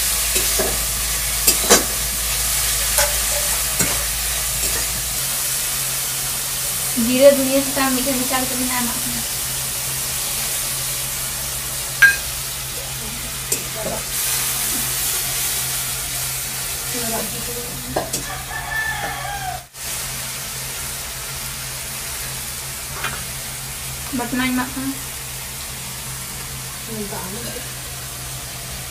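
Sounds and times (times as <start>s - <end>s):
spices sizzling in hot oil: 0.0s - 28.9s
metal clinking on pan: 12.0s - 12.3s.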